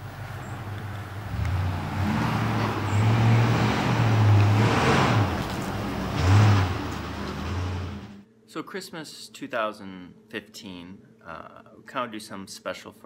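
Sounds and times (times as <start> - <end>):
truck engine rumbling: 0.0 - 8.2.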